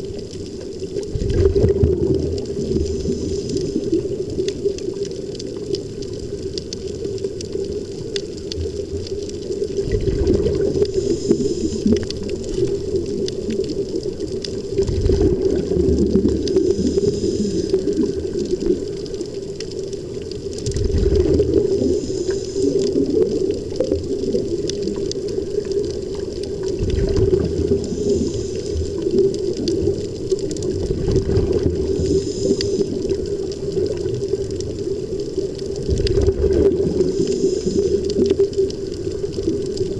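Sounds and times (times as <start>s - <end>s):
air bubbling underwater: 1.1s - 4.4s, 9.7s - 13.8s, 14.6s - 19.0s, 20.6s - 34.6s, 35.8s - 38.6s
steady hum: 9.9s - 13.3s, 15.0s - 18.4s, 26.9s - 29.2s, 31.2s - 33.2s, 36.1s - 38.2s.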